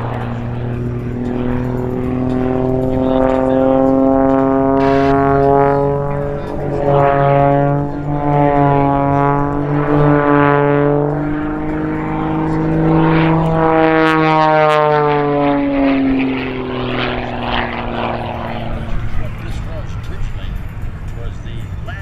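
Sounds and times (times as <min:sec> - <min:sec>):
propeller plane engine droning: 0:00.0 - 0:22.0
rushing noise: 0:04.6 - 0:05.5.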